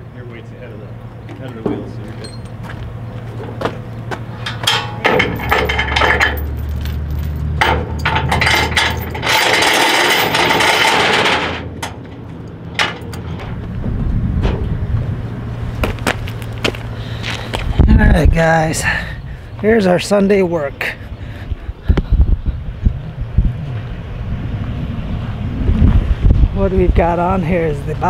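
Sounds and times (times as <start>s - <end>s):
steady engine hum: 0.0s - 28.0s
metal clanks and knocks: 3.3s - 13.6s, 14.4s - 14.8s.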